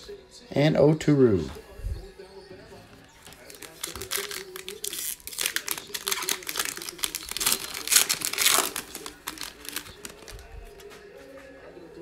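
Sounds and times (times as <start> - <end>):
foil wrapper crinkling: 3.2 - 10.9.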